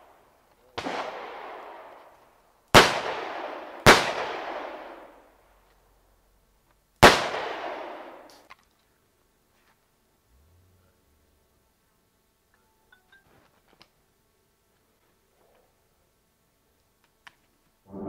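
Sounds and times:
pistol shots echoing: 0.8 - 1.9, 2.7 - 5.2, 7.0 - 8.3.

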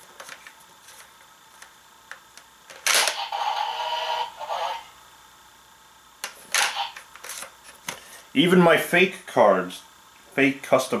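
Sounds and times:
toy speaker electronic sound effect: 2.9 - 4.9, 6.6 - 7.0.

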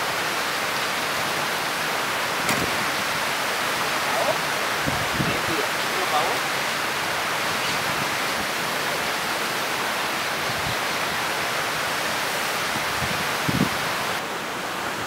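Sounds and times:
low thump: 2.4 - 2.9.

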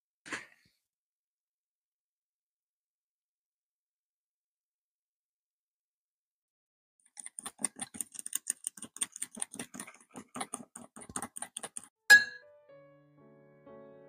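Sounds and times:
fork clinking against glass bowl: 12.1 - 12.4.

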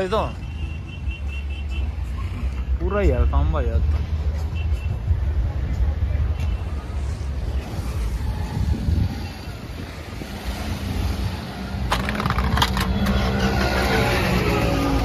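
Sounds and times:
vehicle engines idling: 5.3 - 15.0.

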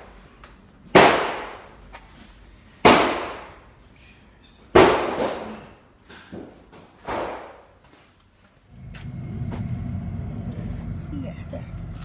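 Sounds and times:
loud sharp ringing bangs: 0.9 - 1.6.

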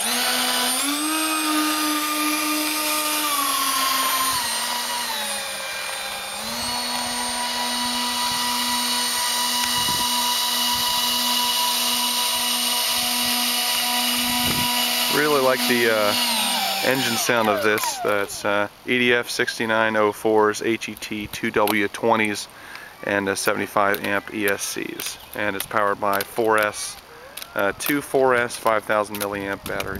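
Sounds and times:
electric ducted fans whining: 0.0 - 18.8.

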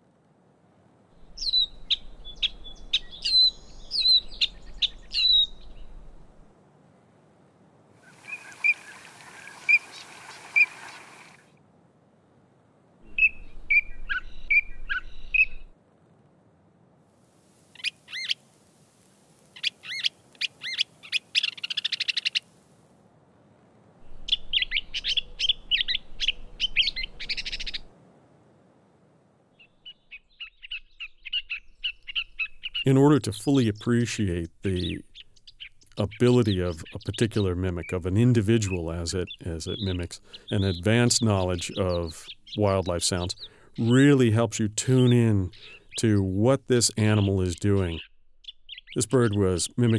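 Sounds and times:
catbird song: 1.2 - 6.2, 13.1 - 15.7, 19.6 - 22.5, 24.1 - 27.9, 29.6 - 32.9, 34.7 - 49.9
rapid sputtering bird calls: 1.4 - 6.2, 8.0 - 11.4, 19.6 - 22.5, 24.1 - 27.9, 29.6 - 32.9, 34.8 - 38.0, 38.6 - 44.1, 45.0 - 49.9.

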